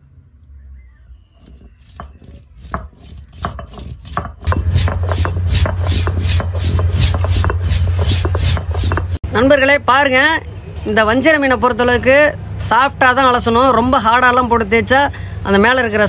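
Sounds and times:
grinding stone crushing spices: 0:01.4 - 0:09.2.

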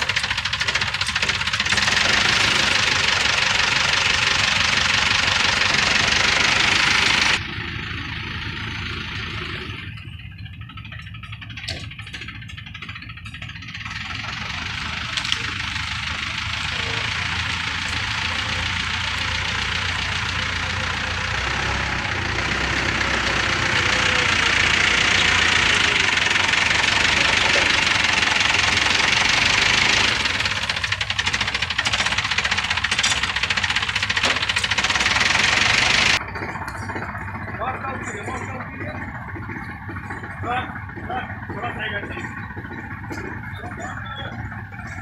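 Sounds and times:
crane engine running hard: 0:00.0 - 0:45.0.

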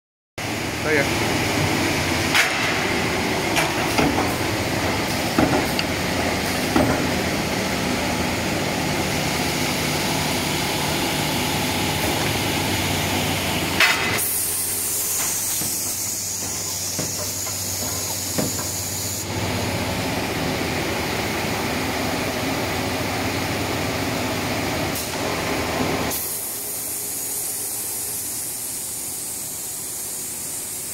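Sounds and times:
machine hum: 0:00.4 - 0:30.9
steady pneumatic hiss: 0:13.8 - 0:19.3, 0:26.1 - 0:30.9
sharp machine knocks: 0:15.0 - 0:18.8.

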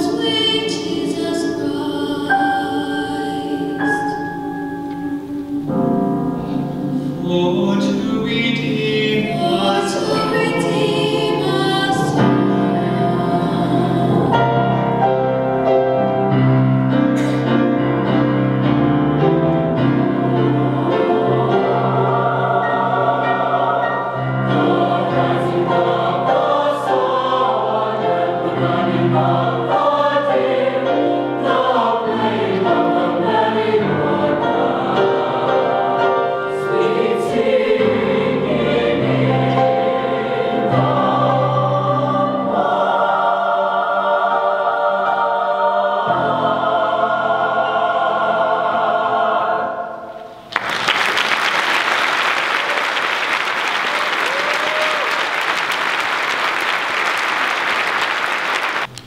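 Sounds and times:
choir singing in harmony: 0:00.0 - 0:50.5.

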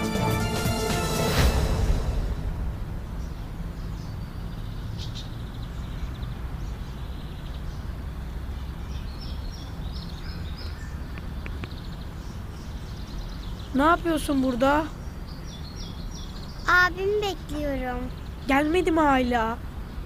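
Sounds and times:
steady low rumble: 0:00.7 - 0:14.2
small birds chirping: 0:03.1 - 0:20.0.

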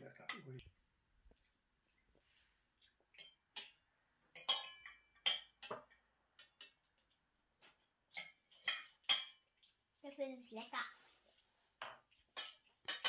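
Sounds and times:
fork clinking on ceramic plate: 0:03.2 - 0:05.9, 0:11.9 - 0:13.0.

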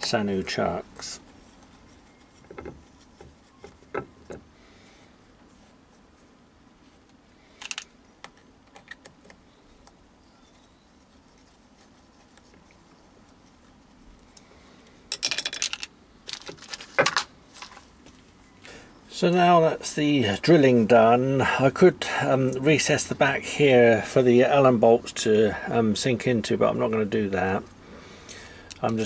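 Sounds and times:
steel parts clicking and tapping: 0:28.7 - 0:29.0.

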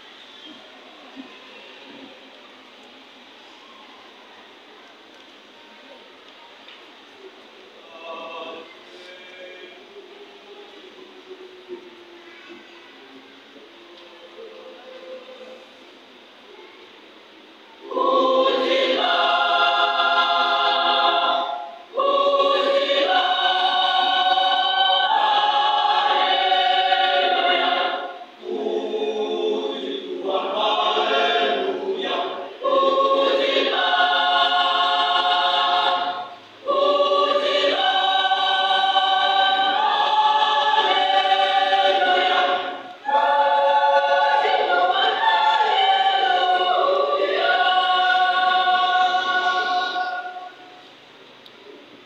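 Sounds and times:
youth choir singing: 0:07.8 - 0:09.8, 0:17.8 - 0:51.0.

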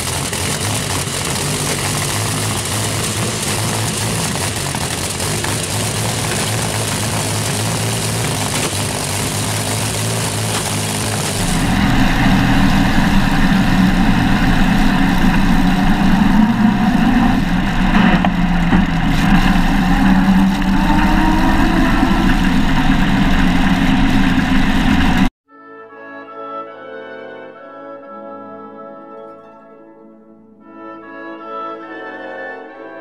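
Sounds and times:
race car engine running: 0:00.0 - 0:25.3.

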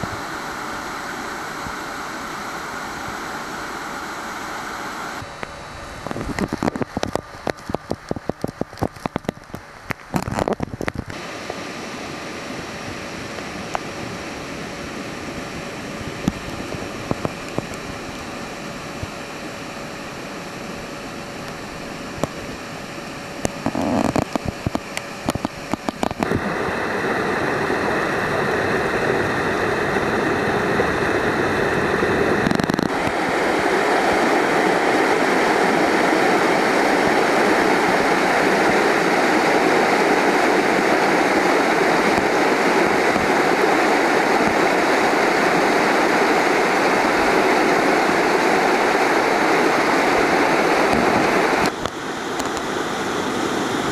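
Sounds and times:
rushing stream and waterfall: 0:00.0 - 0:05.4, 0:06.3 - 0:53.9
sharp clicks and knocks: 0:06.0 - 0:11.2, 0:23.5 - 0:26.3.

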